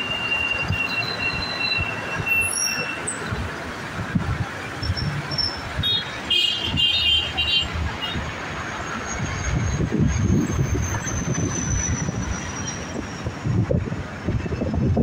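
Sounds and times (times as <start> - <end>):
wind buffeting microphone: 3.3 - 6.0, 7.7 - 15.0.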